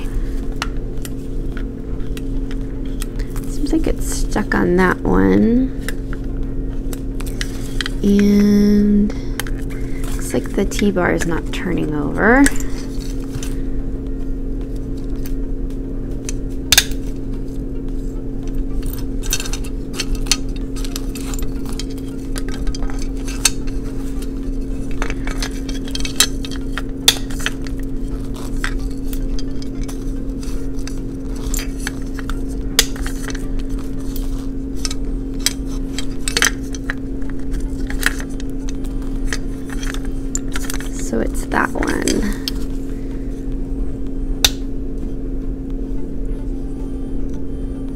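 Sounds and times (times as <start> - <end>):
steady hum: 0.0 - 47.9.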